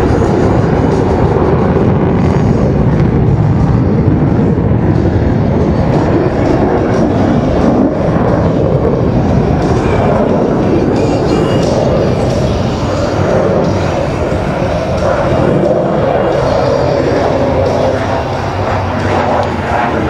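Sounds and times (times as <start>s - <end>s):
jet engines rumbling: 0.0s - 20.0s.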